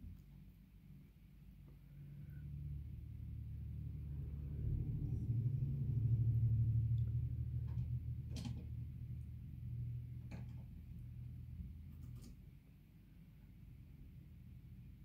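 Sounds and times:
light clicks and scratches: 0:11.6 - 0:12.6.

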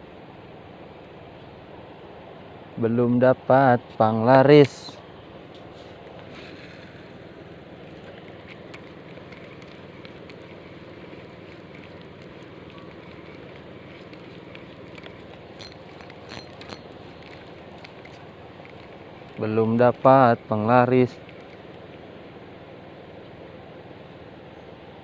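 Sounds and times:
rushing outdoor background noise: 0:00.0 - 0:25.0
faint clicks: 0:07.8 - 0:22.0.

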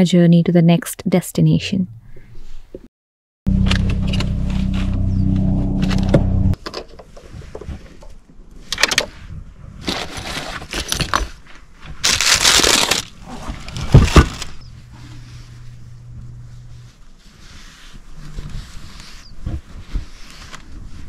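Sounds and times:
steady hum: 0:03.5 - 0:06.6, 0:12.7 - 0:17.1
bags rustling and clicking: 0:09.8 - 0:14.7
loud thumps: 0:13.2 - 0:14.9.

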